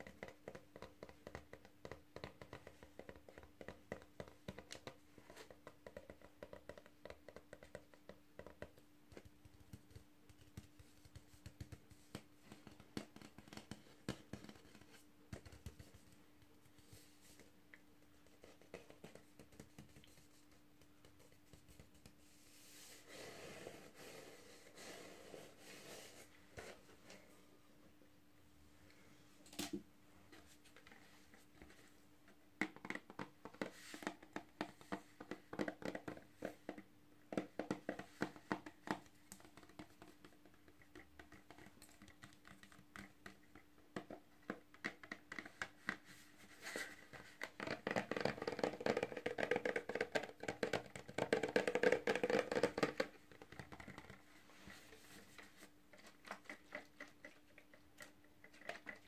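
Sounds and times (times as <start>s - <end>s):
fingernails tapping plastic bottle: 47.4s - 54.2s.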